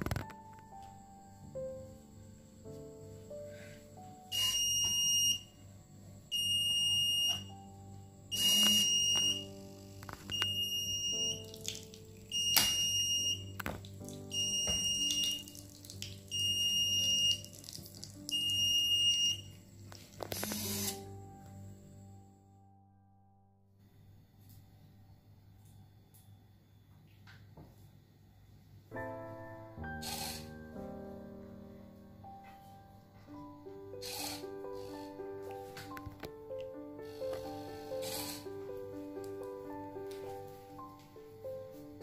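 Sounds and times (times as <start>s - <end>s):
electronic buzzer beeping: 4.3s - 5.5s, 6.3s - 7.6s, 8.3s - 9.6s, 10.3s - 11.4s, 12.3s - 13.5s, 14.3s - 15.4s, 16.3s - 17.4s, 18.3s - 19.6s, 20.3s - 21.1s.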